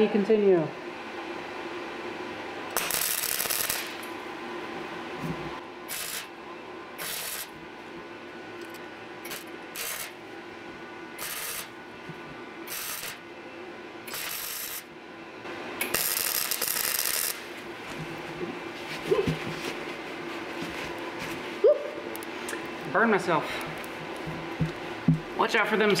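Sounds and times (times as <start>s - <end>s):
welder arc crackling: 2.7s - 4.1s, 5.9s - 6.3s, 7.0s - 7.6s, 8.6s - 10.2s, 11.2s - 11.8s, 12.6s - 13.2s, 14.1s - 14.9s, 15.8s - 17.7s.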